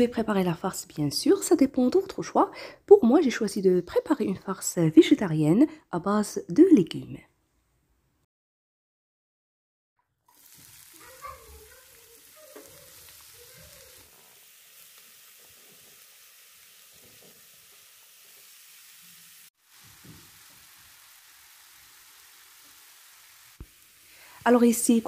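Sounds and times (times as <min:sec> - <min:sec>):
vegetables sizzling in hot oil: 0:10.3 - 0:25.0.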